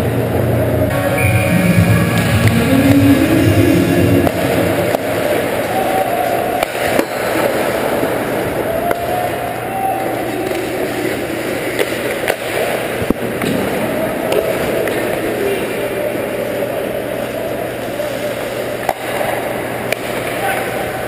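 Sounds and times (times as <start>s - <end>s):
hockey sticks and puck clacking: 1.2s - 3.4s, 4.2s - 16.4s, 17.2s - 21.0s.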